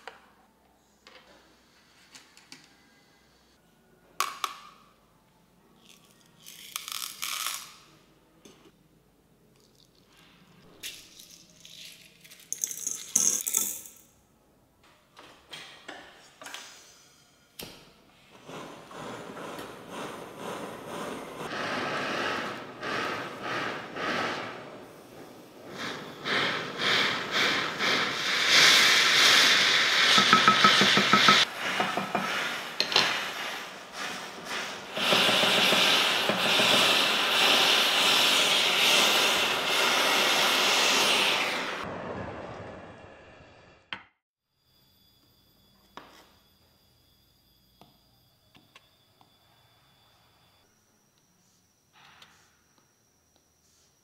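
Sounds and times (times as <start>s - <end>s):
metal pieces rattling into tub: 10.9s - 14.0s
torch flame hissing: 18.3s - 43.7s.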